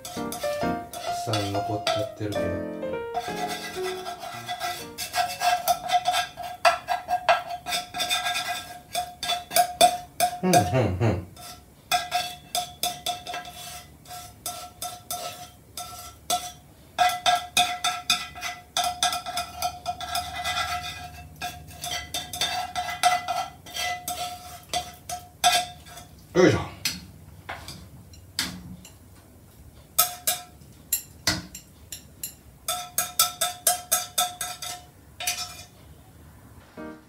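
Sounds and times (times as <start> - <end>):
pan ringing: 0.0 - 5.1
chopsticks scraping frying pan: 0.0 - 10.7, 11.3 - 26.2, 31.9 - 35.8.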